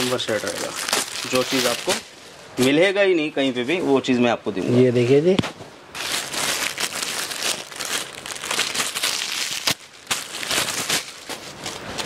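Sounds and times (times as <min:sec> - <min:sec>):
plastic bag crinkling: 0:00.0 - 0:02.2, 0:05.9 - 0:12.0.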